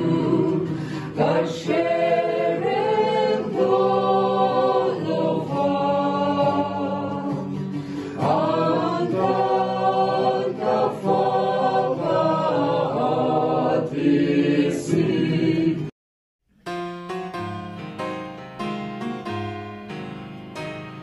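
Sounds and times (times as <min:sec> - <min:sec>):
group singing a hymn unaccompanied: 0:00.0 - 0:15.9.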